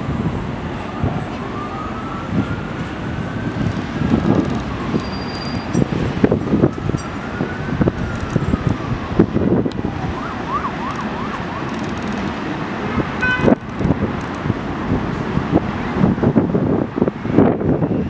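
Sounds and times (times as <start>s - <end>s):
siren wailing and yelping: 6.4s - 12.1s.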